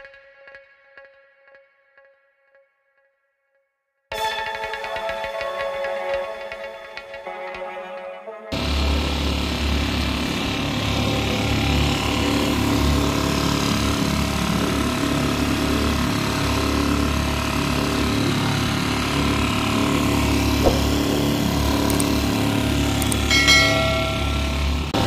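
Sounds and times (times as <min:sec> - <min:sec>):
outboard motor running: 0:08.5 - 0:25.0.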